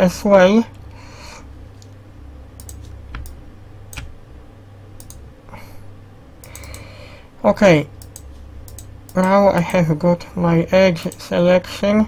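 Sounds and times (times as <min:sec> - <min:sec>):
low steady hum: 0:00.0 - 0:12.0
mouse and keyboard clicks: 0:02.6 - 0:04.1.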